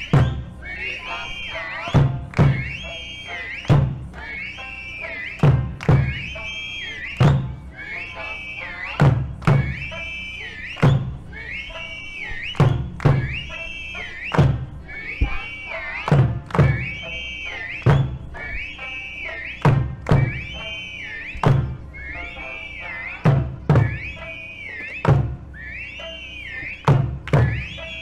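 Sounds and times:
heavy drum beat: 0:01.9 - 0:02.8, 0:09.0 - 0:09.9, 0:12.4 - 0:17.0, 0:23.2 - 0:24.3, 0:26.8 - 0:27.7.

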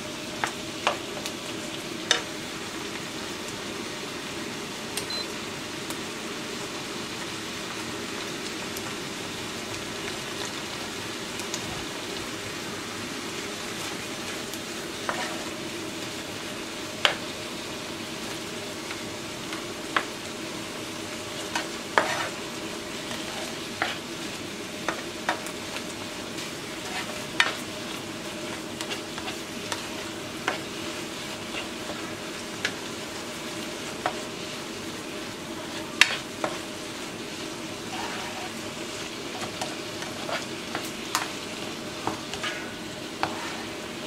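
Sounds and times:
meat sizzling in a frying pan: 0:00.0 - 0:44.0
spatula scraping and clicking on pan: 0:15.1 - 0:15.5, 0:21.5 - 0:22.4, 0:23.1 - 0:24.0, 0:26.8 - 0:27.6, 0:28.8 - 0:30.7, 0:36.0 - 0:36.6, 0:37.9 - 0:38.6, 0:39.3 - 0:41.4, 0:42.0 - 0:43.8.

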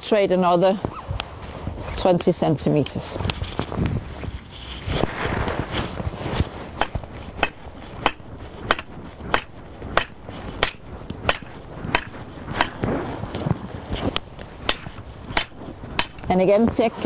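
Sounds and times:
hammer striking metal rod: 0:06.8 - 0:12.8.

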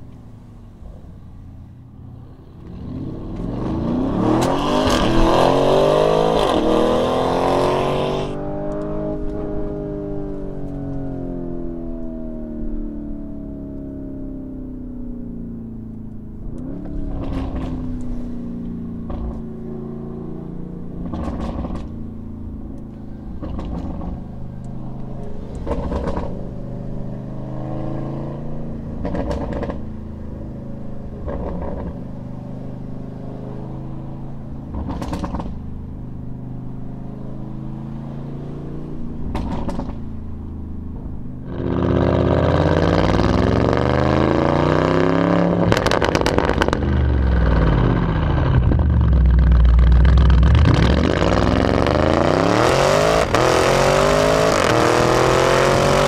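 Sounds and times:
car engine at low revs: 0:00.0 - 0:56.0
sharp exhaust cracks: 0:45.5 - 0:52.5.

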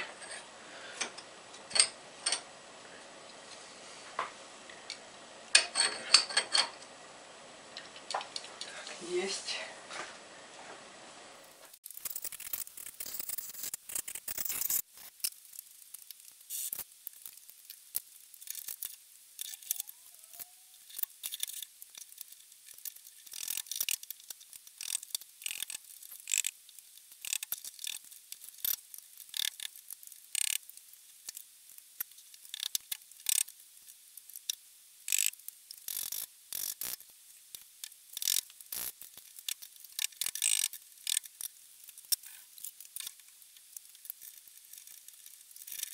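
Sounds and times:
steel gears clinking: 0:11.8 - 0:17.4, 0:18.4 - 0:26.5, 0:38.2 - 0:43.1.

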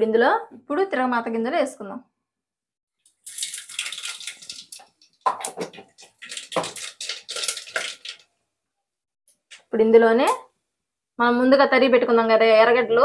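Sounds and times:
seeds sizzling in hot oil: 0:03.1 - 0:04.8, 0:06.0 - 0:08.2.

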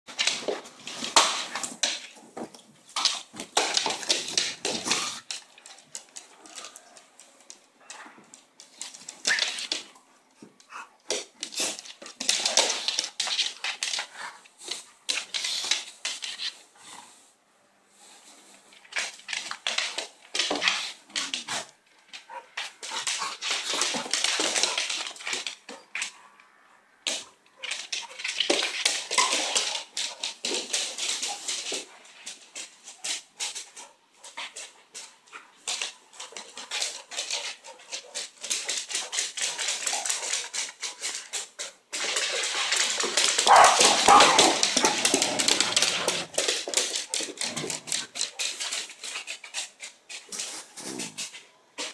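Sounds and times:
claws scrabbling on wooden floor: 0:00.1 - 0:17.2, 0:18.0 - 0:51.9.

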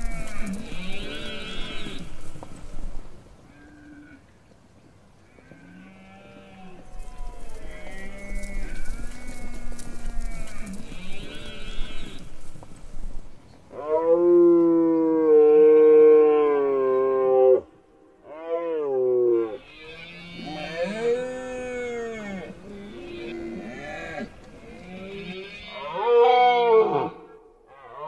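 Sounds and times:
deer stags roaring: 0:13.7 - 0:28.0.

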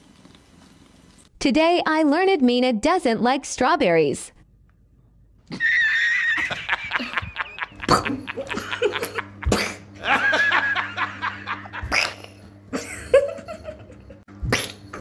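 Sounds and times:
man laughing: 0:05.5 - 0:14.2.

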